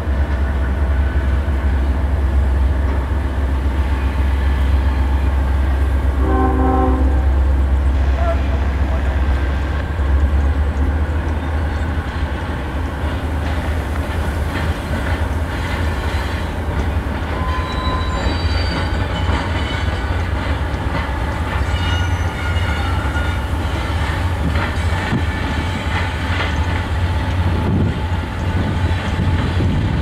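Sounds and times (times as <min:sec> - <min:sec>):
freight train rumbling: 0:00.0 - 0:30.0
wheels squealing on rails: 0:07.8 - 0:30.0.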